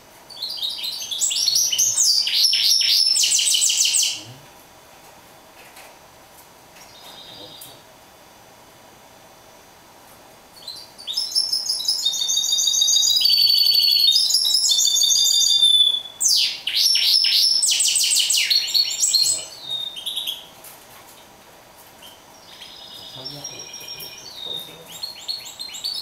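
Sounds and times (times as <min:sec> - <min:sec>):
finch singing trills: 0:00.3 - 0:04.4, 0:06.8 - 0:07.8, 0:10.6 - 0:20.5, 0:22.0 - 0:26.0.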